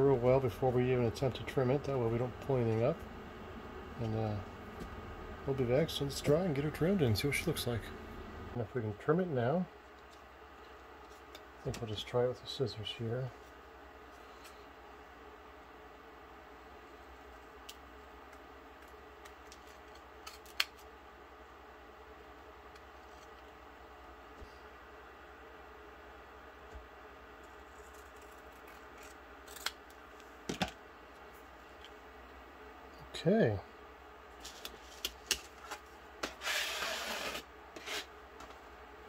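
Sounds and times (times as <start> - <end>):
object rubbing across a mat: 36.3 - 38.1
short scrape: 36.3 - 38.1.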